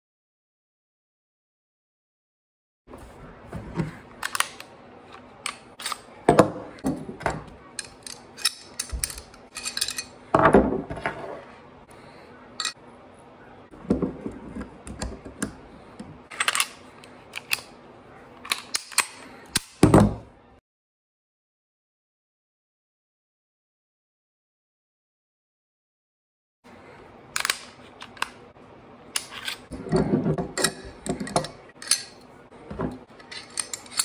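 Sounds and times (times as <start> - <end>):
metallic gun parts clicking: 4.2 - 4.7, 7.7 - 10.2, 16.3 - 17.7, 18.4 - 19.8, 27.4 - 28.4, 30.5 - 32.3, 33.0 - 34.0
metal parts clacking on wooden table: 5.4 - 11.3, 29.1 - 34.0.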